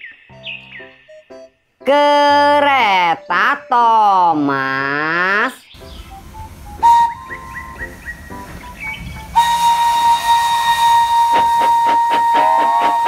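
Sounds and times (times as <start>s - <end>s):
steam locomotive whistle blast: 5.8s - 13.0s.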